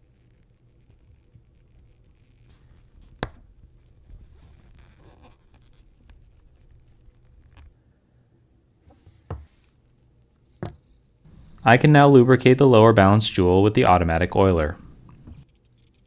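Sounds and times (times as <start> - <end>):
small tools scratching: 0.0 - 3.2, 3.8 - 7.7, 15.4 - 16.0.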